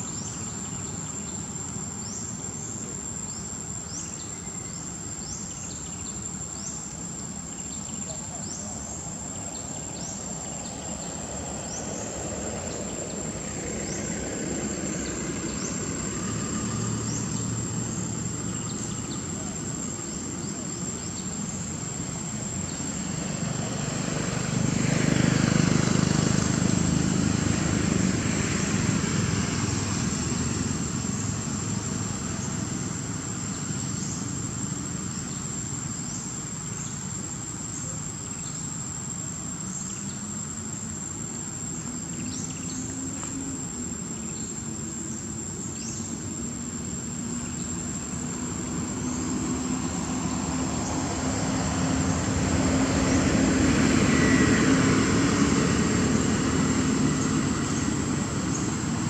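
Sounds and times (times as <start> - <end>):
high-pitched insect drone: 0.0 - 59.0
low engine hum rising in pitch: 8.7 - 35.9, 39.4 - 59.0
motor engine passing: 9.2 - 59.0.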